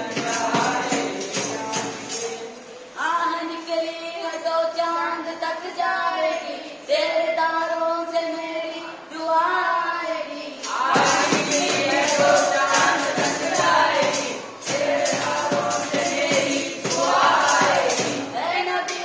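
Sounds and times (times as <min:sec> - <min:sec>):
fast steady percussive beat: 0:00.0 - 0:02.6, 0:10.6 - 0:19.0.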